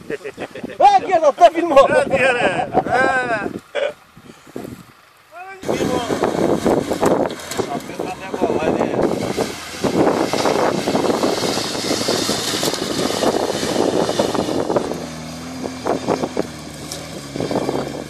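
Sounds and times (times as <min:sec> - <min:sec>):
vehicle driving through tall grass: 0:05.6 - 0:18.0.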